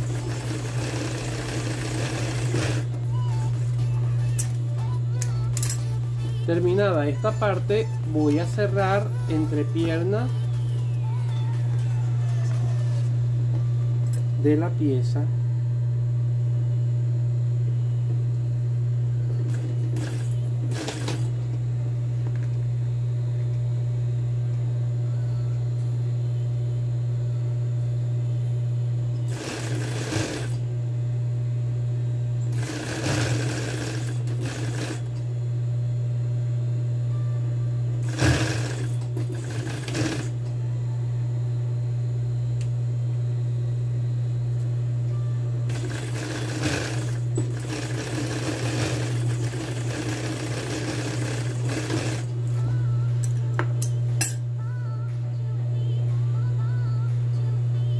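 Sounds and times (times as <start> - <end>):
sewing machine stitching denim: 0.0 - 3.6, 19.5 - 21.3, 29.3 - 30.6, 32.5 - 35.2, 38.0 - 40.4, 45.7 - 52.3
sewing machine motor humming: 0.0 - 13.2, 19.4 - 21.5, 29.3 - 30.7, 32.4 - 35.2, 38.0 - 40.5, 45.6 - 53.4.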